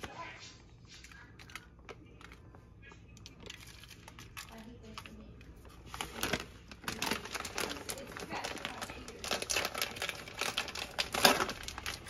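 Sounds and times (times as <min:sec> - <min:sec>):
packaging crinkling: 0:03.2 - 0:12.0.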